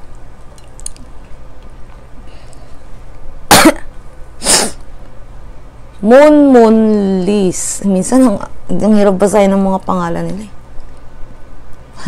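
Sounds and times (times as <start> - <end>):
woman coughing: 3.5 - 3.9.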